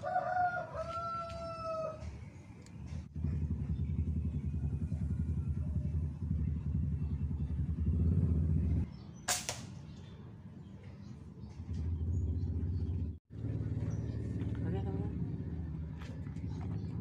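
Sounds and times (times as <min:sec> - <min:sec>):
pulsing engine rumble: 0:02.0 - 0:09.0, 0:11.4 - 0:17.0
air rifle shot: 0:09.3 - 0:09.9.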